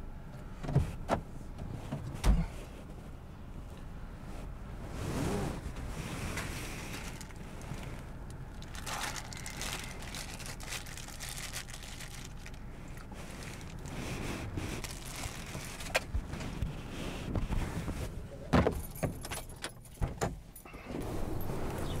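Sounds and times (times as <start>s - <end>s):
plastic bag crinkling: 6.6s - 16.1s.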